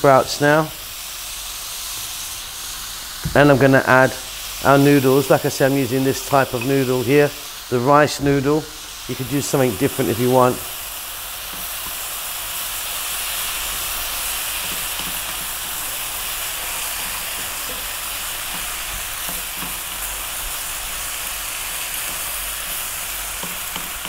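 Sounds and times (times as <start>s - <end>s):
food sizzling in a wok: 0.0s - 24.0s
spatula tapping and scraping: 11.5s - 12.0s, 14.6s - 16.1s, 16.9s - 20.2s, 21.8s - 24.0s.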